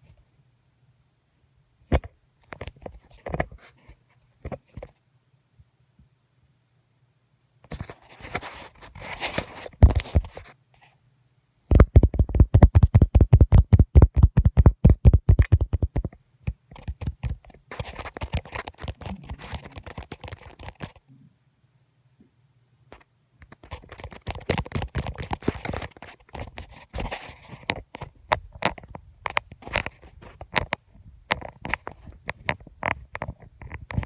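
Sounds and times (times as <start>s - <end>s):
dog scratching and rustling: 16.8s - 21.0s, 23.4s - 28.0s.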